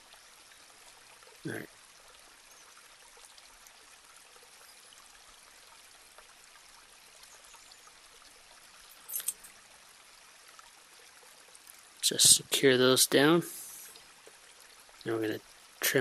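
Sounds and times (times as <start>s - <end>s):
faint room hiss: 3.6s - 16.0s.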